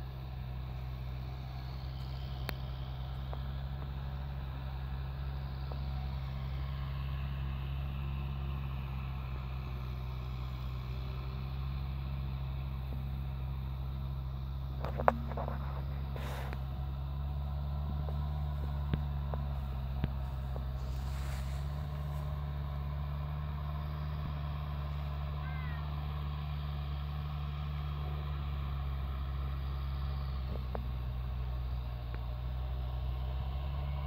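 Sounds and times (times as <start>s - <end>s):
low mechanical drone: 0.0s - 34.0s.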